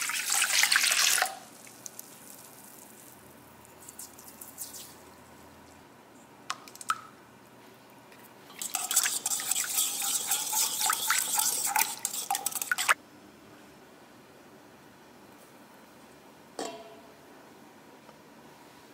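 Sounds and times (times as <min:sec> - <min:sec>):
utensil stirring in bowl: 0:08.5 - 0:13.0.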